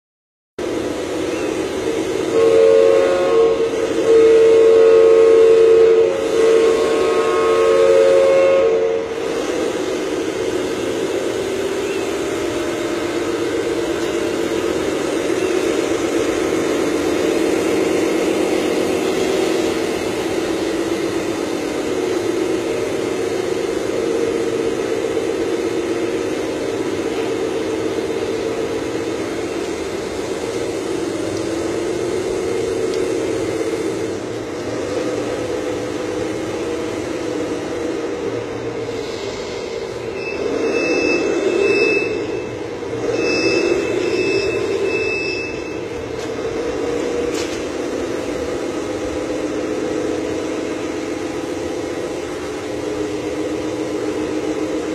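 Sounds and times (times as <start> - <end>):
engine-like drone: 0.6 - 54.9
two-tone horn blasts: 2.2 - 9.3, 40.1 - 46.0.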